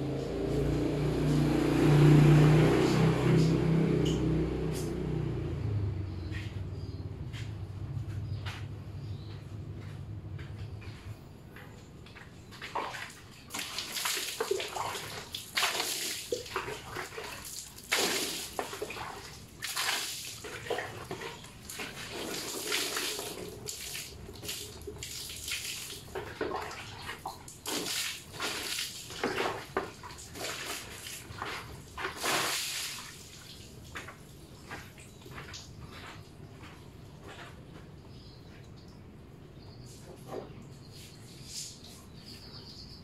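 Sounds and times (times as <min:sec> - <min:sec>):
water splashing on scooter: 0:12.7 - 0:34.6.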